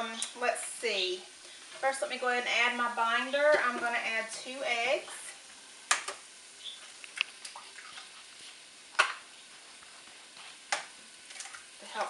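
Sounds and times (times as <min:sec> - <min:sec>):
faint sizzling in a pan: 0:00.0 - 0:12.0.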